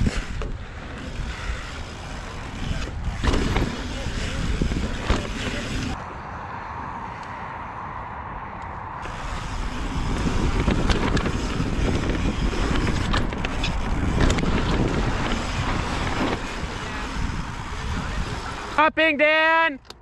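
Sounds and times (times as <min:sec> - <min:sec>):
bike clicks and rattles: 0:00.0 - 0:06.0, 0:09.0 - 0:18.8
tyres rolling on dirt and rock: 0:00.0 - 0:06.0, 0:09.0 - 0:18.8
wind buffeting microphone: 0:00.0 - 0:06.0, 0:08.9 - 0:18.8.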